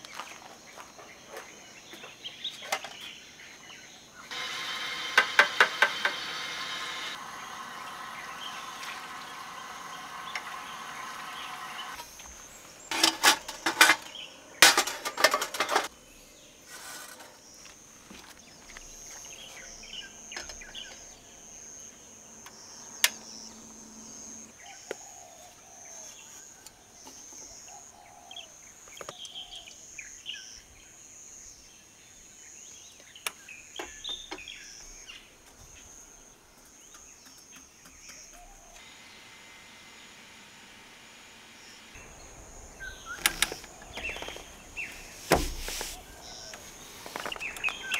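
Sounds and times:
insects chirping: 0.0 - 47.9
hiss: 44.8 - 47.1.

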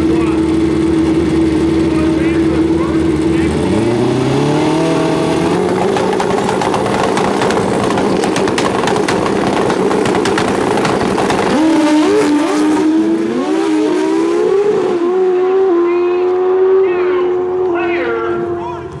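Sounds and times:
engine crackle: 0.0 - 15.0
motorcycle engines revving: 0.0 - 19.0
motorcycles accelerating through gears: 0.0 - 19.0.

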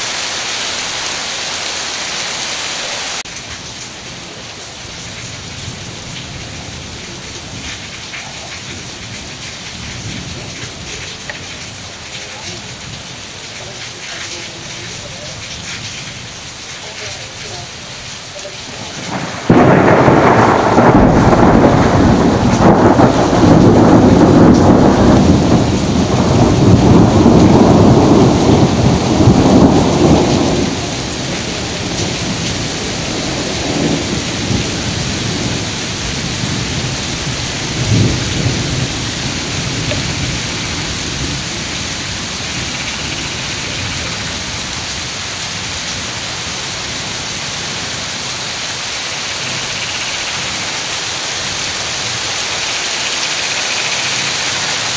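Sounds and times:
torrential rain hissing: 0.0 - 54.9
thunder rumbling: 18.8 - 46.2.

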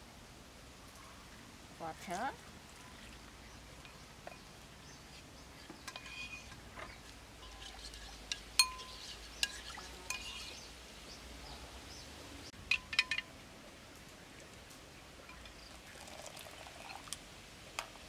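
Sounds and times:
spoon stirring batter: 5.0 - 10.7
spoon clinking on ceramic bowl: 7.4 - 10.6.

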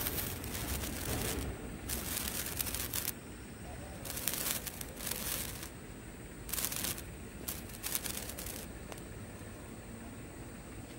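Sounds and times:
sparkler fizzing and crackling: 0.0 - 3.2, 4.0 - 5.8, 6.5 - 9.0.

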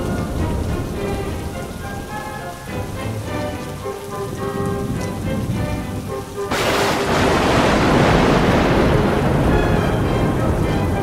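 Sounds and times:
heavy rain: 0.0 - 11.0
soft background music: 0.0 - 11.0
loud thunder crash: 6.5 - 11.0.

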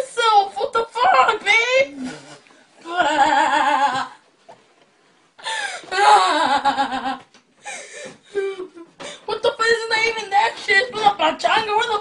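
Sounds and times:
boy crying: 0.9 - 2.0, 2.8 - 4.2, 5.4 - 9.3.

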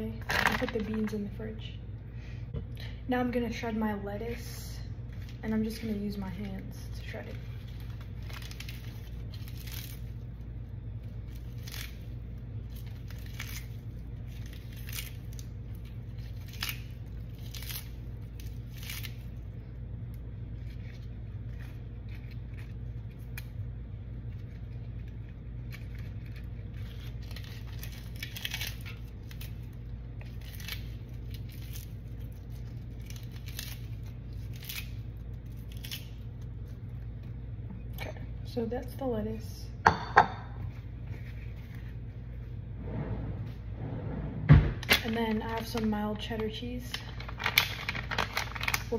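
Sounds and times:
low hum: 0.0 - 48.9
lettuce leaves tearing: 5.1 - 19.7, 20.5 - 37.3, 44.8 - 48.9.

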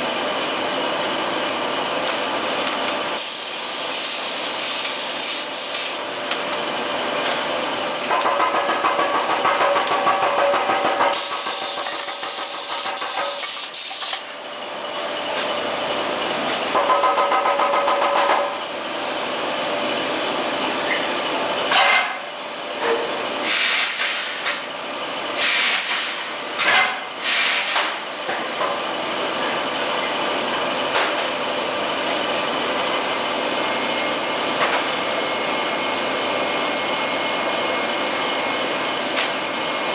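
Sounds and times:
foundry machinery noise: 0.0 - 39.9
buzzing pneumatic machine: 2.7 - 6.2, 7.2 - 14.4, 16.3 - 18.8, 20.6 - 29.7.

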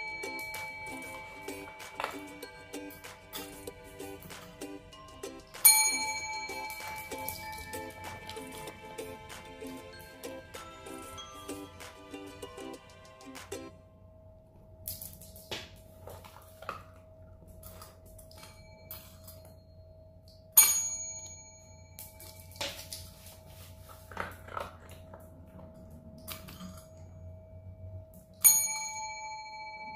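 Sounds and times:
desk service bell ding: 0.0 - 3.6, 4.9 - 11.9, 18.3 - 20.0, 20.6 - 22.8, 28.4 - 29.9.

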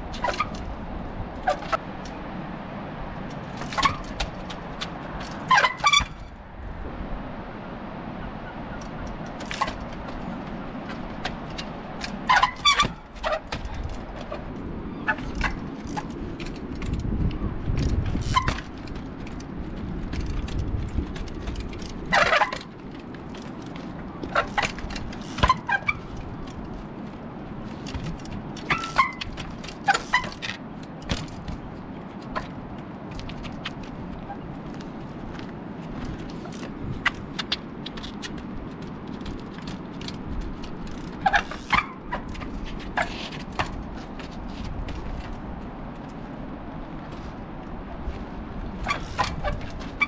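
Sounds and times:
trials bike hopping over rocks: 3.3 - 6.3, 9.2 - 50.0
bike brakes squealing: 5.5 - 6.3, 12.3 - 13.5, 18.2 - 18.6, 24.3 - 26.1, 28.7 - 29.3, 29.9 - 30.4, 48.8 - 50.0.

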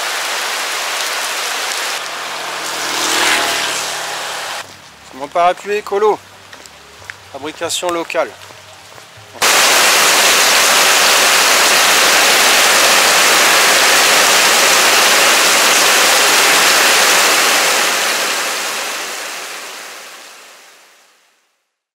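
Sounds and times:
water pouring off a roof: 0.0 - 3.5, 9.4 - 20.5.

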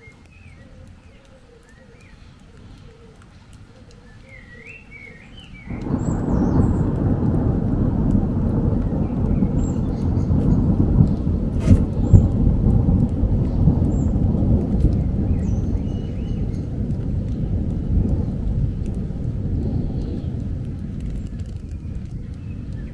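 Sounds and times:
thunder rumbling: 5.6 - 22.9
sharp thunder crack: 5.7 - 22.9.

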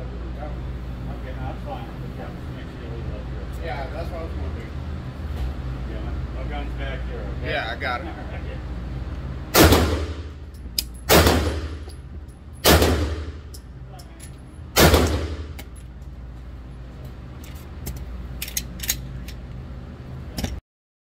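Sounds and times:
pistol shots echoing: 9.5 - 10.3, 11.1 - 11.9, 12.6 - 13.5, 14.8 - 15.6
pistol handling clicks: 10.5 - 11.1, 17.9 - 19.4.

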